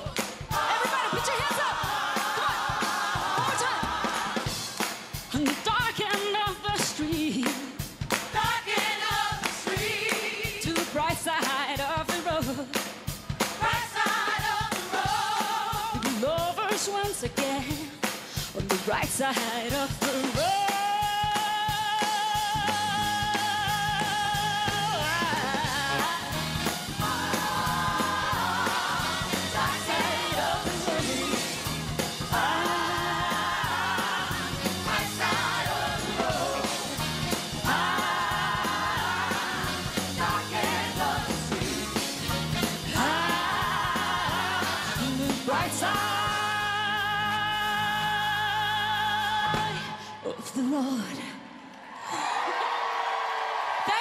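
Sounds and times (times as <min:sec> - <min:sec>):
bass and drum beat: 0:00.0 - 0:49.8
woman singing with vibrato: 0:42.9 - 0:51.6.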